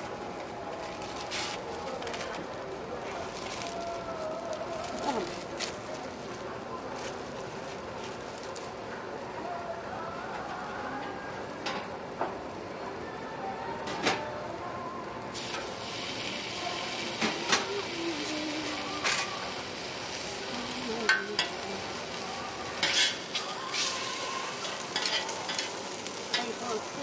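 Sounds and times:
food sizzling on a griddle: 15.3s - 27.0s
metal tongs and spatula scraping: 22.8s - 26.6s.

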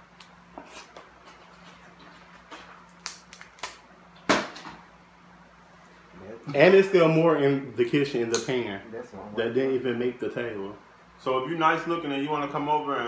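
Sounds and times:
crab shells cracking: 2.9s - 3.8s.

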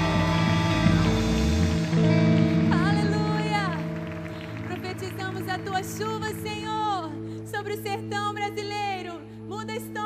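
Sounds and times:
woman singing: 4.7s - 10.0s.

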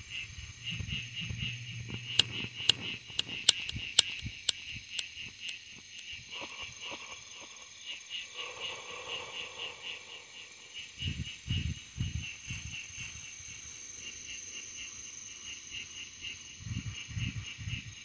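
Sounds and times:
high steady insect trill: 0.0s - 18.0s
pulsing insect chorus: 0.0s - 18.0s
sharp clicks: 1.9s - 6.2s.

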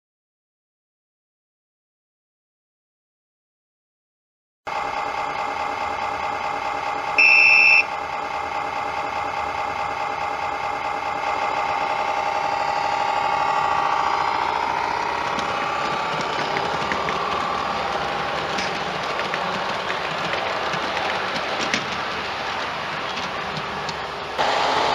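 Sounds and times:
model locomotive running sound: 4.7s - 24.9s
short high horn note: 7.2s - 7.9s.

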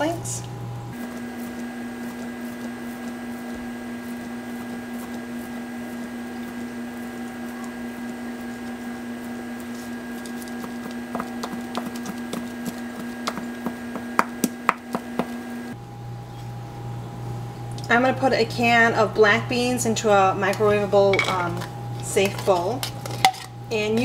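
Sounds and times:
steady low hum: 0.0s - 24.0s
knife chopping on cutting mat: 10.6s - 15.4s.

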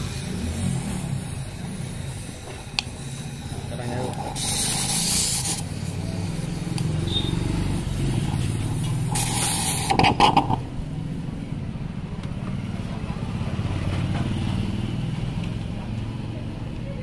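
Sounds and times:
gas torch flame hissing: 0.0s - 11.6s.

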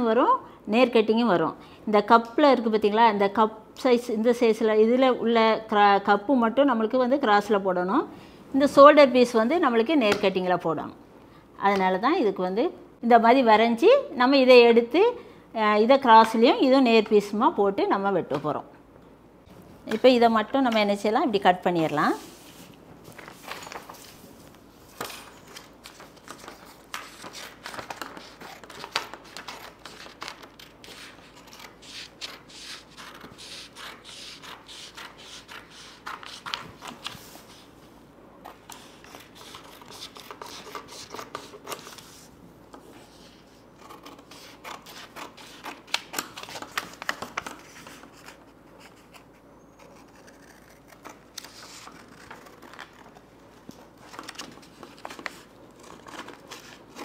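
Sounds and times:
scissors snipping paper: 49.8s - 53.1s.

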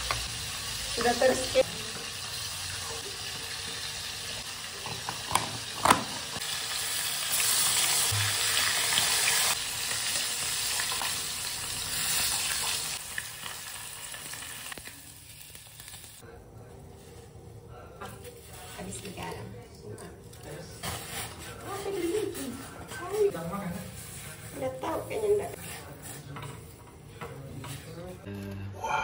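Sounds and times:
oil sizzling in a wok: 0.0s - 16.2s.

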